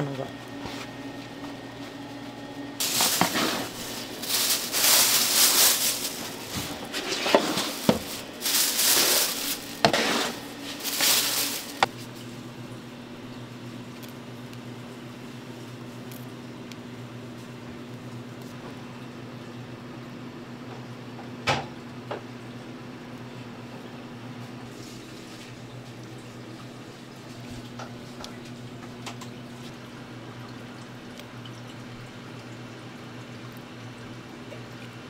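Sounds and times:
low steady hum: 0.0 - 20.0
rustling and scraping of utensils: 2.8 - 12.2.

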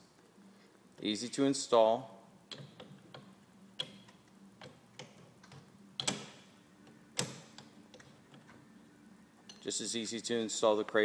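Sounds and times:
light metallic clicks and knocks: 2.5 - 8.6, 9.4 - 9.8.

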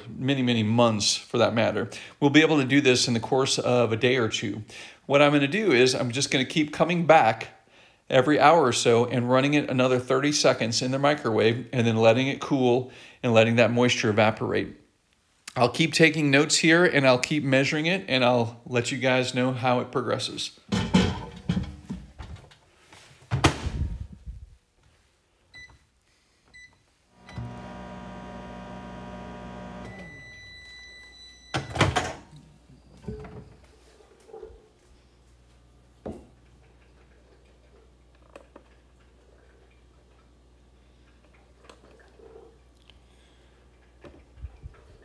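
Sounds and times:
microwave oven humming: 27.2 - 32.2
microwave keypad beeps: 29.8 - 31.9.

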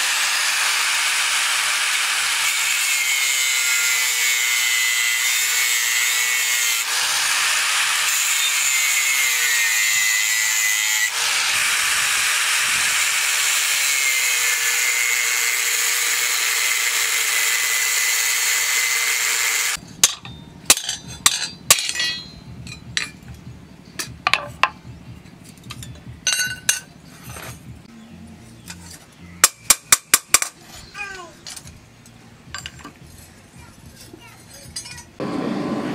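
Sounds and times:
angle grinder cutting steel: 0.0 - 19.8
metal clinks and knocks: 19.8 - 27.8, 31.4 - 35.2.

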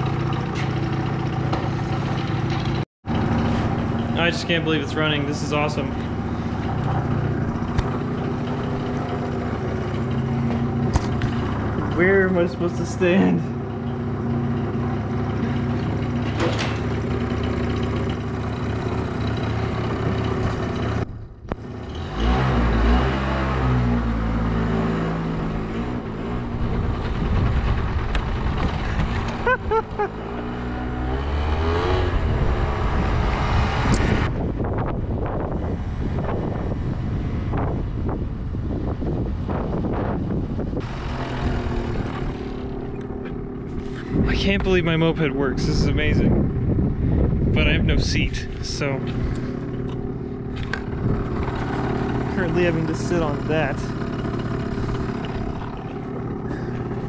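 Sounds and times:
scooter engine idling: 0.0 - 21.8, 40.2 - 45.2, 46.4 - 57.0.

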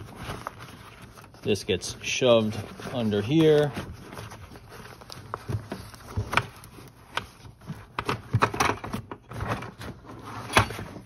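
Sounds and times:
fabric rustling and scraping: 0.0 - 8.0.

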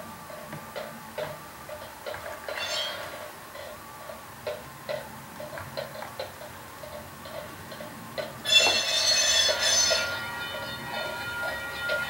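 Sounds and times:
model train wheels clickety-clack: 0.0 - 12.0
locomotive horn blast: 8.5 - 12.0.

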